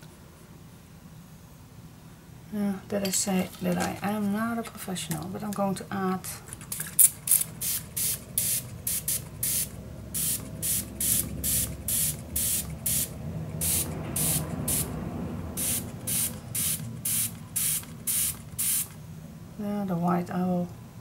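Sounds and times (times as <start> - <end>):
spray bottle spritzes: 7.0 - 14.9, 15.6 - 19.0.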